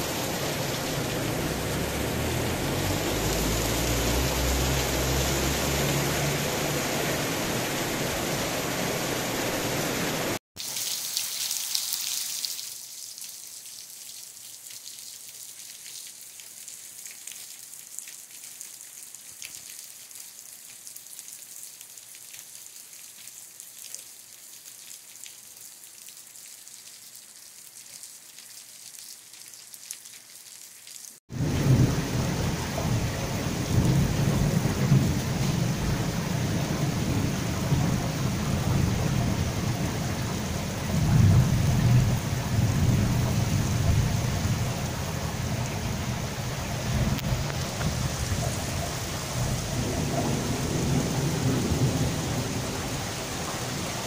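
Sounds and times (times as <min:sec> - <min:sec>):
heavy downpour: 0:00.0 - 0:54.0
light rain hiss: 0:00.0 - 0:54.0.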